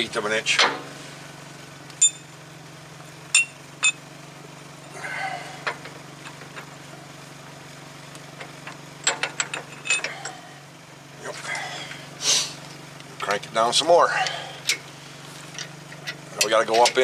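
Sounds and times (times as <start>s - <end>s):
low hum: 1.0s - 7.6s
ringing metal knocks: 3.3s - 4.0s.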